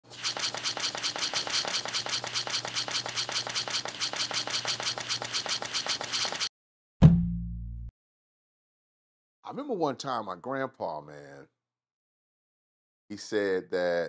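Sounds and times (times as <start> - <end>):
rapid clicking rattle: 0.1 - 6.5.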